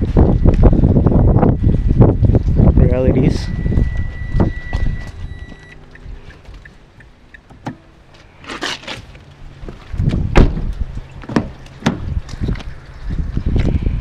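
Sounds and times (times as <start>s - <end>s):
car warning chime: 2.9s - 6.4s
car door thudding shut: 10.3s - 12.1s.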